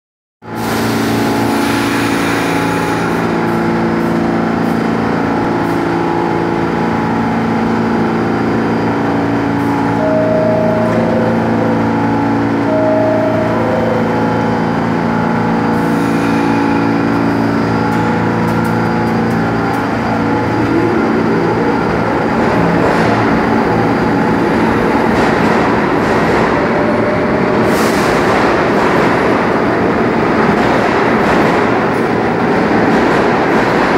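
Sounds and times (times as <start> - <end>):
subway train humming: 0.4 - 33.9
train departing rumble: 0.4 - 33.9
brief tones: 9.8 - 14.6.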